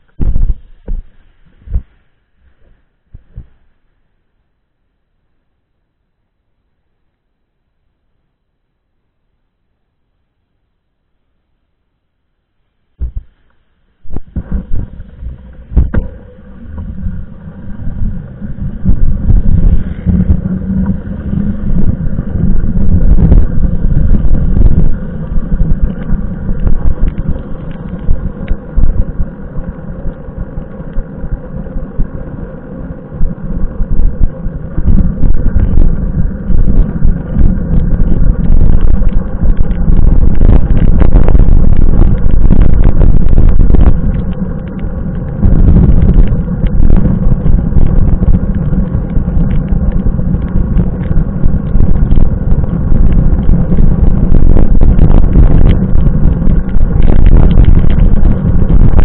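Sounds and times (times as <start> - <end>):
wind buffeting microphone: 0.0 - 1.9, 14.0 - 59.0
road rumble: 13.0 - 59.0.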